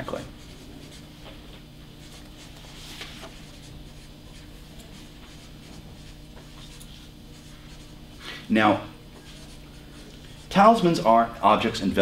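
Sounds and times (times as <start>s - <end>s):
paper rustling: 2.5s - 3.7s.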